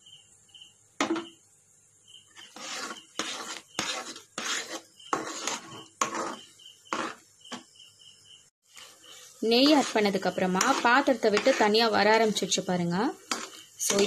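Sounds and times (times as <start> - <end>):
spatula scraping dough in a pan: 2.2 - 7.7, 8.7 - 14.0.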